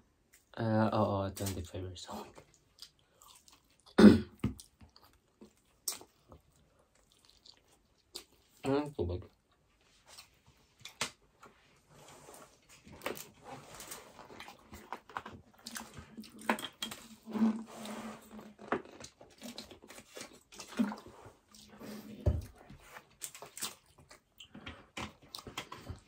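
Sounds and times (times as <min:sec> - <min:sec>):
wet chewing and lip smacks: 0:02.3 - 0:04.0, 0:04.6 - 0:08.6, 0:23.2 - 0:25.7.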